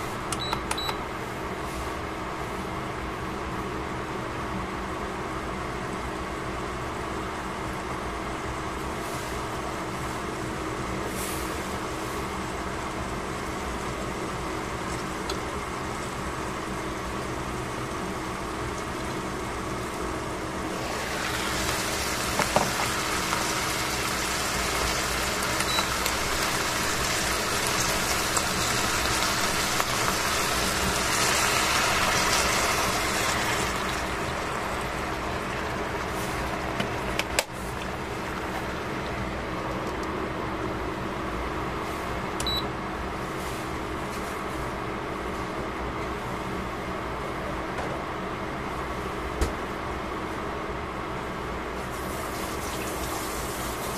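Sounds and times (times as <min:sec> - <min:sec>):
vegetables steaming and sizzling in a pot: 0:06.2 - 0:39.8, 0:51.8 - 0:53.9.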